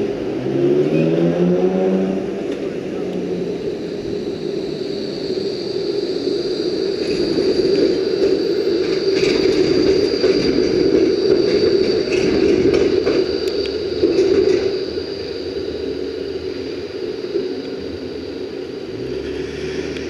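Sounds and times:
tram rolling on rails: 0.0s - 20.0s
thin high whine: 2.2s - 20.0s.

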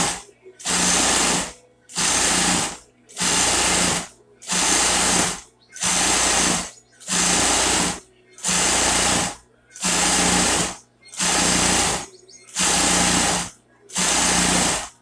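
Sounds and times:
sewing machine stitching: 0.0s - 15.0s.

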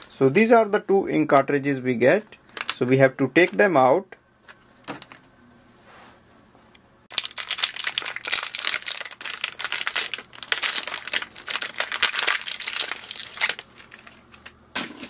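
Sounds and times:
foil packaging crinkling: 2.4s - 2.8s, 7.1s - 15.0s.

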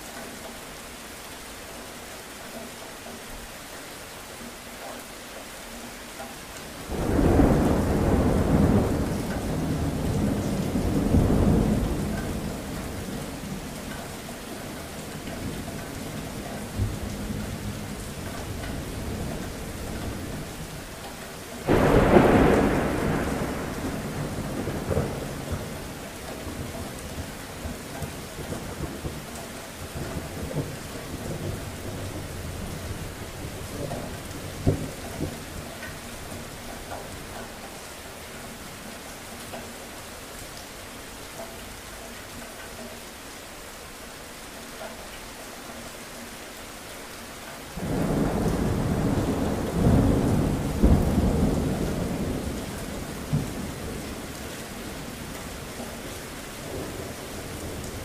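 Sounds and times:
steady rain: 0.0s - 58.0s
thunder rumbling: 6.9s - 13.7s, 21.6s - 37.3s, 47.8s - 58.0s.

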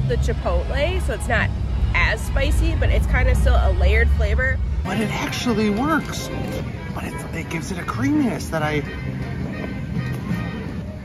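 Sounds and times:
low held bass notes: 0.0s - 11.0s.

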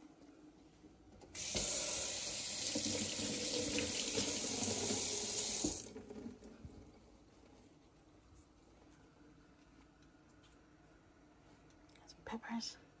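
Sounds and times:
tap running into sink: 1.4s - 6.4s.

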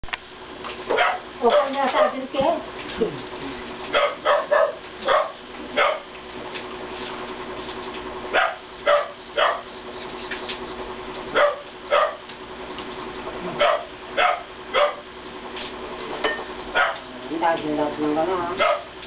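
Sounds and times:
dog barking: 0.9s - 2.3s, 3.9s - 6.1s, 8.3s - 9.7s, 11.3s - 12.2s, 13.5s - 15.1s, 16.7s - 17.1s, 18.6s - 18.9s.

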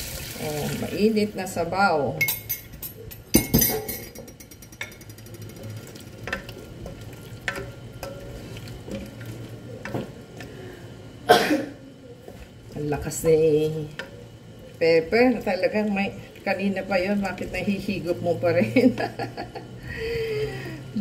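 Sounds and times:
spoon clinking against pot: 2.2s - 5.6s
spoon clattering: 2.2s - 6.5s
spoon stirring in pot: 2.2s - 11.2s, 11.9s - 18.3s.

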